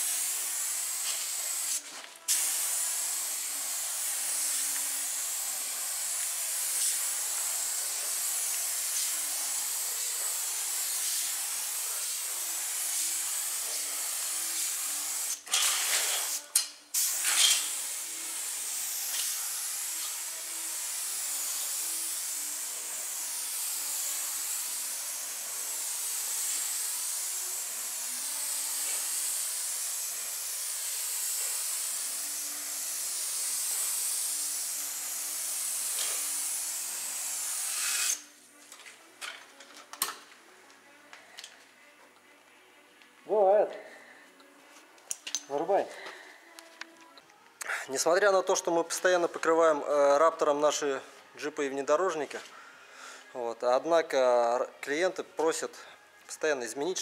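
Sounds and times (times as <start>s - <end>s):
spray gun hissing: 0.0s - 38.2s.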